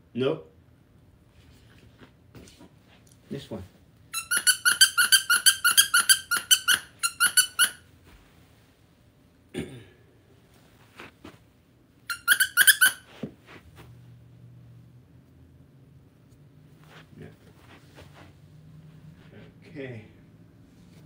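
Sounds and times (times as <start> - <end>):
dog toy squeaking: 4.1 - 7.9, 12.0 - 13.1.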